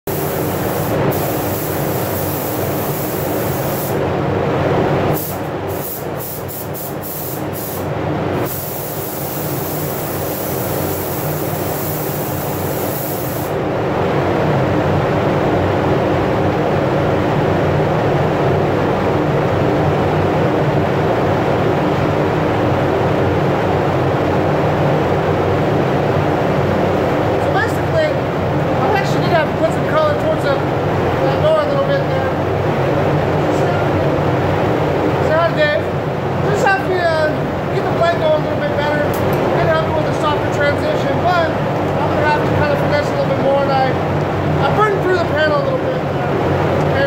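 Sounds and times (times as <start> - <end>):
spray gun hissing: 0.0 - 4.0, 5.2 - 13.6.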